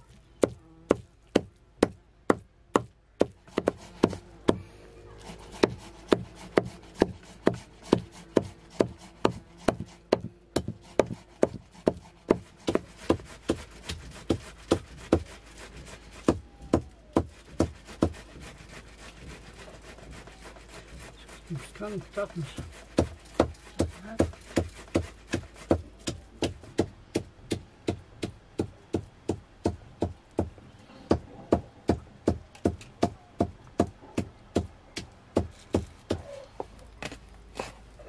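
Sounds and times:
blade chopping wood: 0:00.4 - 0:04.6, 0:05.5 - 0:15.4.

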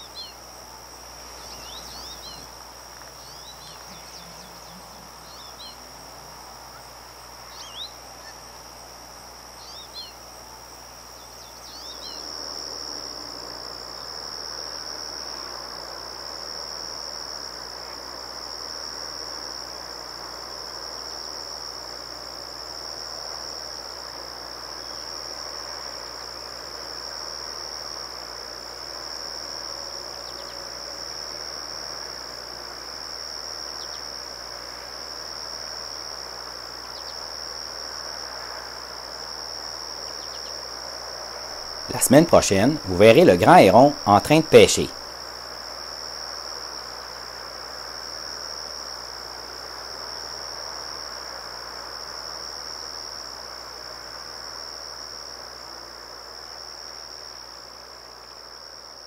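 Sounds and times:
bird chirps: 0:00.0 - 0:00.4, 0:01.4 - 0:02.5, 0:03.2 - 0:05.9, 0:07.5 - 0:08.4, 0:09.6 - 0:10.2, 0:11.2 - 0:12.2
insects trilling: 0:00.0 - 0:59.0.

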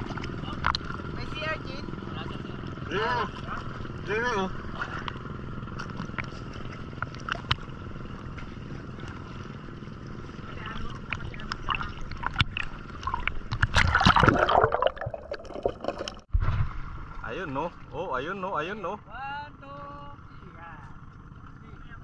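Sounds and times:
sea water lapping and sloshing: 0:00.0 - 0:18.5
underwater bubbling and gurgling: 0:04.9 - 0:17.2.

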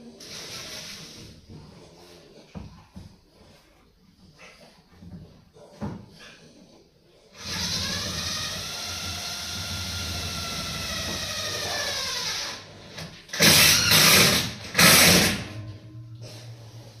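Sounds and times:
power drill whining: 0:07.4 - 0:15.4.

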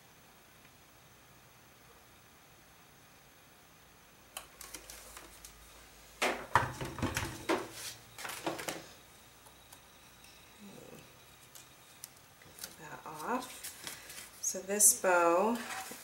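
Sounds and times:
pressing sheet crinkling: 0:04.4 - 0:05.6, 0:11.4 - 0:14.5.

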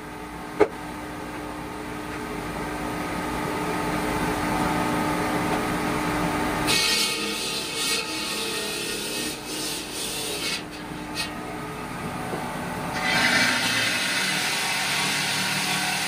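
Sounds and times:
saw cutting stone: 0:06.7 - 0:11.4, 0:12.9 - 0:16.0.

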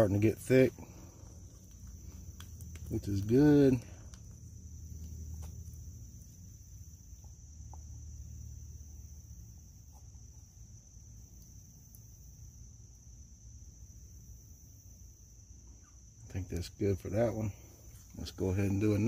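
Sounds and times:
insects trilling: 0:00.0 - 0:19.0.

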